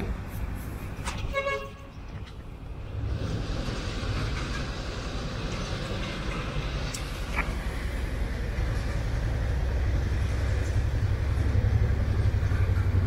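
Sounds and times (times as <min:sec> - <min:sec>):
low rumble: 0:01.9 - 0:13.0.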